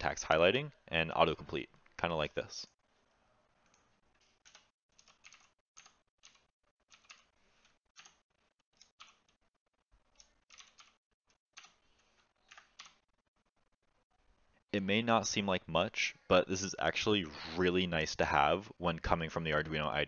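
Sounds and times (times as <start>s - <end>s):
faint keyboard typing: 3.5s - 13.1s.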